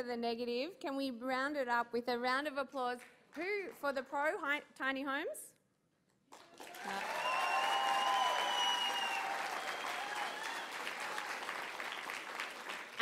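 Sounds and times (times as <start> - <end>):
audience applauding: 6.3 - 13.0
long held cheer: 6.6 - 13.0.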